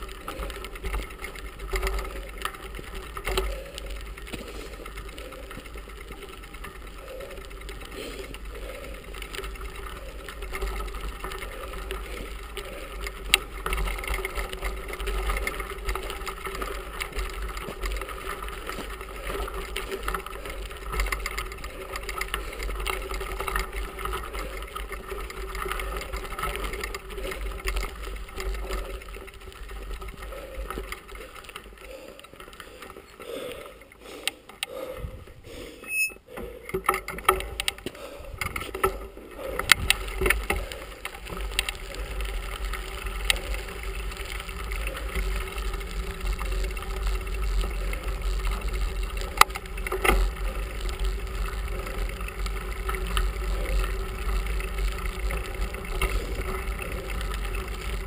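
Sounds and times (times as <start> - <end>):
bicycle tyre rumble: 0.0 - 58.0
bike rattling clicks and knocks: 0.0 - 58.0.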